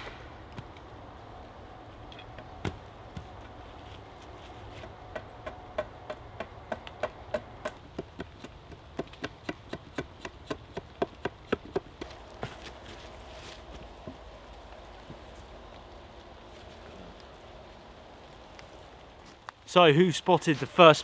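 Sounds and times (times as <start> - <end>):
axe chopping wood: 4.8 - 12.5.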